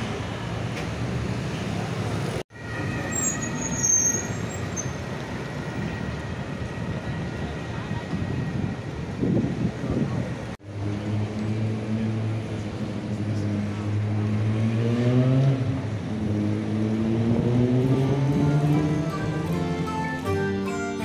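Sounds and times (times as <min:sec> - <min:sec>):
street noise: 0:00.0 - 0:21.0
vehicle engine accelerating: 0:10.6 - 0:20.2.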